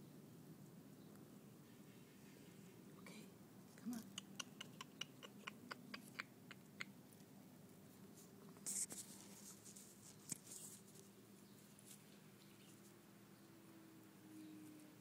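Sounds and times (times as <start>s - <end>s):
scratchy rustle: 8.1s - 12.9s.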